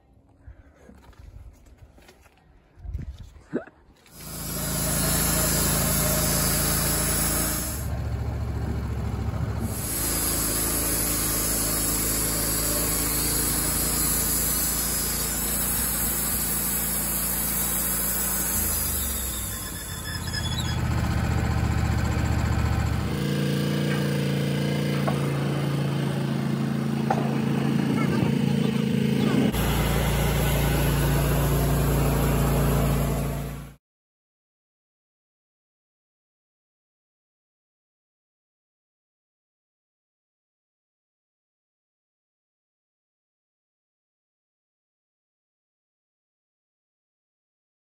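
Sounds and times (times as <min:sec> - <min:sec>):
sawmill engine running: 0:04.1 - 0:33.8.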